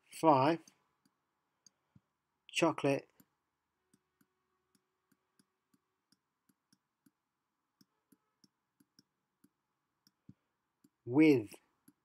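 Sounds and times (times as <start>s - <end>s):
stylus tapping on tablet: 3.2s - 11.0s.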